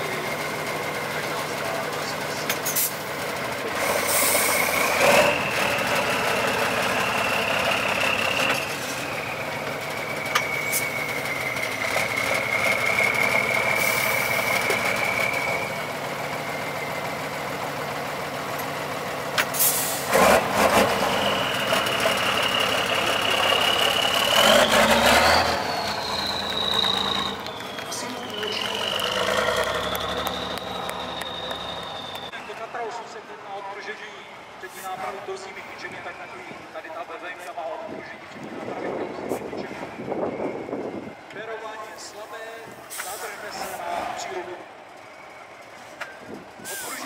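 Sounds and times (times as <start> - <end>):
diesel truck engine revving: 0.0 - 33.3
high steady whistle: 4.4 - 17.1, 21.0 - 33.2.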